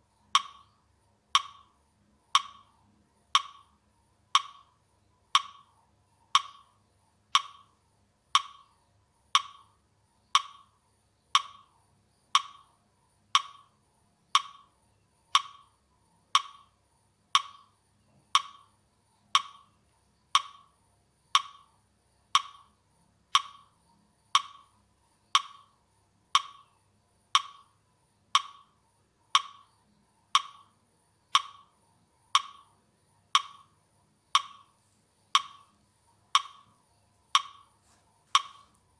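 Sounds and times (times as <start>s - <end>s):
metronome clicking: 0.3s - 0.7s, 1.3s - 1.7s, 2.3s - 2.7s, 3.3s - 3.7s, 4.3s - 5.7s, 6.3s - 6.7s, 7.3s - 7.7s, 8.3s - 8.7s, 9.3s - 9.7s, 10.3s - 10.7s, 11.3s - 11.7s, 12.3s - 12.7s, 13.3s - 13.7s, 14.3s - 14.7s, 15.3s - 15.7s, 16.4s - 16.7s, 17.4s - 17.7s, 18.3s - 18.7s, 19.3s - 19.7s, 20.3s - 20.7s, 21.3s - 21.7s, 22.3s - 22.7s, 23.3s - 24.7s, 25.3s - 25.7s, 26.3s - 26.7s, 27.3s - 27.7s, 28.3s - 28.7s, 29.3s - 29.7s, 30.4s - 30.7s, 31.3s - 31.7s, 32.4s - 32.7s, 33.3s - 33.7s, 34.3s - 34.7s, 35.4s - 36.7s, 37.3s - 37.7s, 38.4s - 38.8s.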